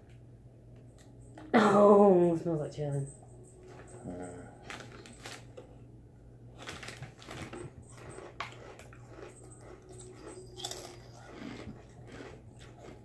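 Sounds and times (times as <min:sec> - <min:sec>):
foil snack bag crinkling: 0:04.6 - 0:05.6, 0:06.6 - 0:09.8
chip crunching: 0:04.7 - 0:05.6, 0:06.6 - 0:13.0.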